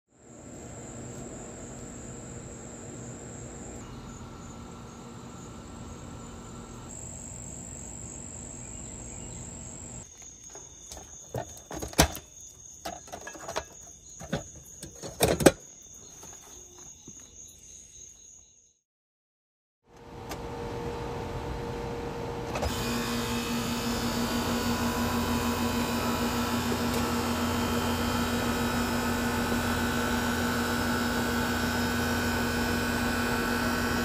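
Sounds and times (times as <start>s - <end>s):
crickets trilling: 0.2s - 18.8s
heat pump fan whirring: 20.0s - 34.0s.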